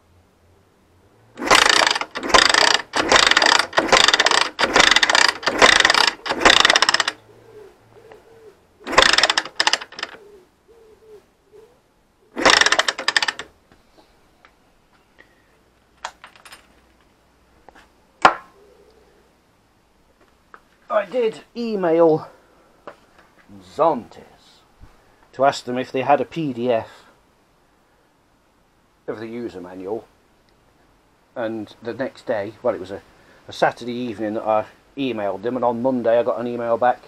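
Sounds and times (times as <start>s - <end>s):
motorcycle electric starter cranking: 1.4s - 7.2s, 8.9s - 10.2s, 12.4s - 13.5s.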